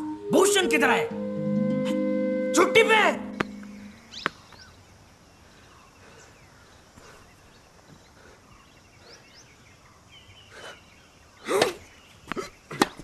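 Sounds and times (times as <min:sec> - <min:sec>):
small birds chirping: 0:03.3 - 0:13.0.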